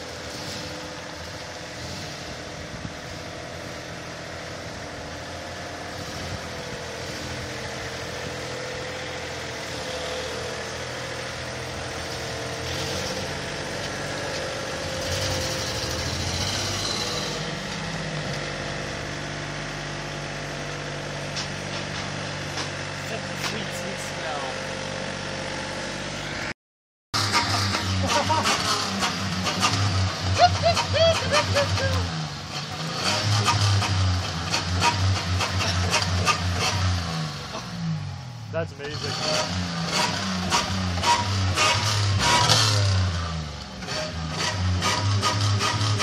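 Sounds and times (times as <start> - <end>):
pickup truck engine hum: 0.0 - 26.5, 27.2 - 46.0.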